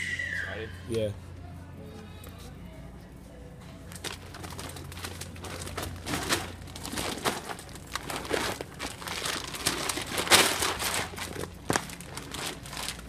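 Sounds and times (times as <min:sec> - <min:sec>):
large bags crinkling and rustling: 0:03.9 - 0:13.0
bags dropping on floor: 0:05.4 - 0:13.0.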